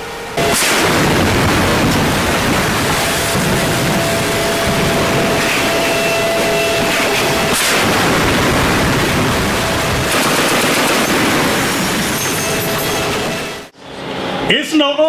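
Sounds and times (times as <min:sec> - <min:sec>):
sharp crack: 0:00.4 - 0:11.9
gunfire and explosions: 0:00.4 - 0:13.7.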